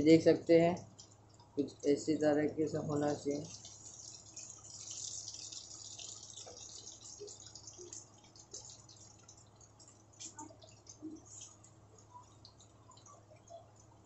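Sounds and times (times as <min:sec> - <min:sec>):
food sizzling in hot oil: 0:03.0 - 0:11.6.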